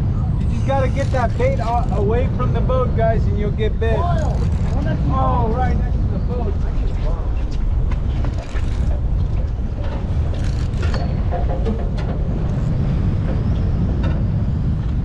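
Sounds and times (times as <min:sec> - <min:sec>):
wind and boat rumble: 0:00.0 - 0:15.0.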